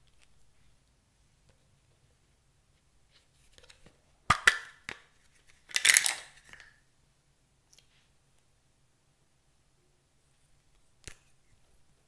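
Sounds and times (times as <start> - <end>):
plastic packaging clicks and crackling: 5.6 - 6.8
small items clattering into bowl: 5.7 - 6.7.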